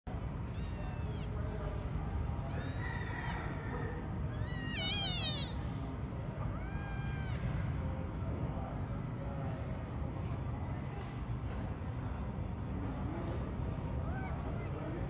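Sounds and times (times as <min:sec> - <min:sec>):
kitten meowing: 0:00.5 - 0:01.4, 0:02.4 - 0:03.6, 0:04.3 - 0:05.6, 0:06.5 - 0:07.5.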